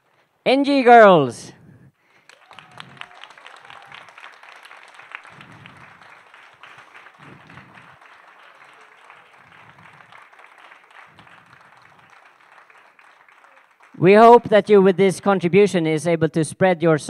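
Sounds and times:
audience applauding: 0:02.1 - 0:15.0.

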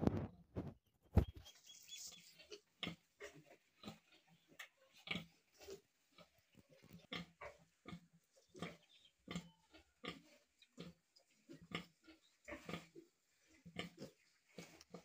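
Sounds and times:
sow grunting: 0:07.0 - 0:13.1.

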